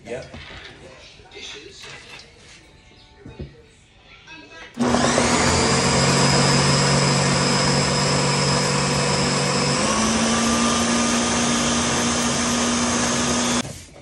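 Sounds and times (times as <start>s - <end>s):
blender running: 4.8s - 13.6s.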